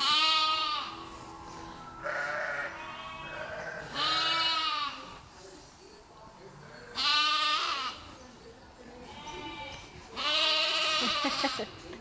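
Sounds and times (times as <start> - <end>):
lamb bleating loudly: 0.0 - 1.0, 2.0 - 5.1, 6.9 - 8.0, 9.1 - 11.6
sheep bleating quietly: 0.0 - 1.0, 2.0 - 5.1, 6.9 - 8.0, 9.1 - 11.5.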